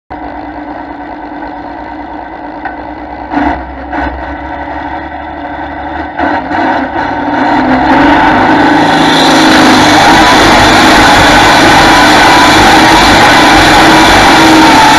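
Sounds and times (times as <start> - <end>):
tractor diesel engine idling: 0.1 - 8.2
tractor engine revving: 0.1 - 14.9.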